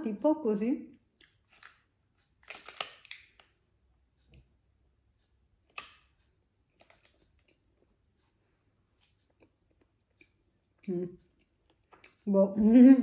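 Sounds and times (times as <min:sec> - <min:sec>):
plastic wrapper crinkling: 0:02.4 - 0:03.5.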